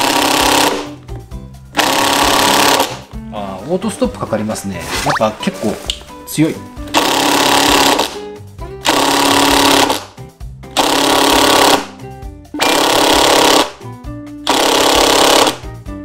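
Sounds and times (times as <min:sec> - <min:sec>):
impact driver hammering screw: 0:12.6 - 0:13.7, 0:14.5 - 0:15.6.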